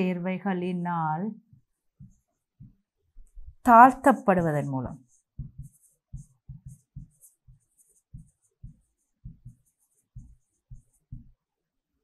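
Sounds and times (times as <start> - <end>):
pen scratching on paper: 3.2 - 11.4.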